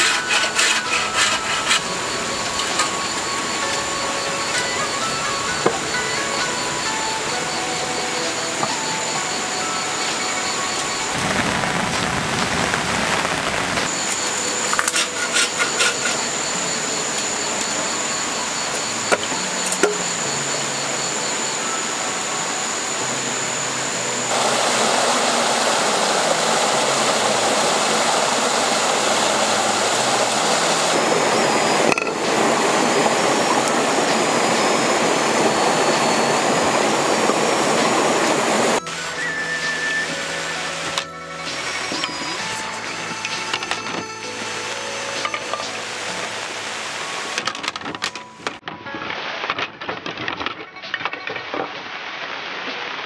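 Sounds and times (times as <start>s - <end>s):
high-pitched tone: 0.0s - 48.6s
stream spilling over rocks: 22.5s - 40.9s.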